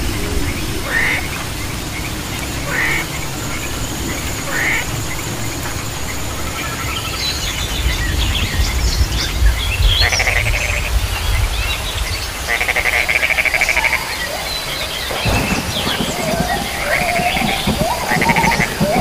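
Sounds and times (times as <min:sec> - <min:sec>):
birds chirping: 0:00.0 - 0:19.0
frog calling rattling pulses: 0:15.1 - 0:19.0.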